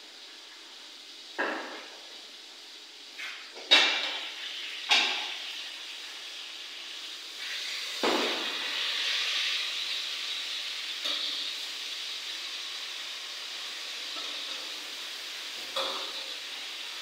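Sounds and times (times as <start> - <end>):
cooking hiss from pot: 0.0 - 17.0.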